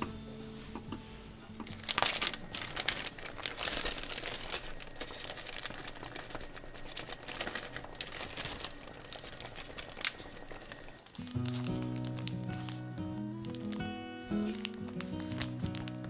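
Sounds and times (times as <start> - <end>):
plastic bag crinkling: 1.6 - 16.0
chopped onions shaken out: 1.7 - 10.5.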